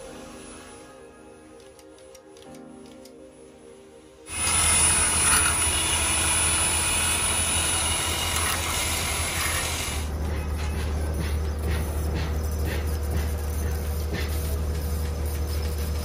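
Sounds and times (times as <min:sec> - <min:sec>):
electric drill boring into metal: 0:04.3 - 0:10.1
low machine hum: 0:04.3 - 0:16.0.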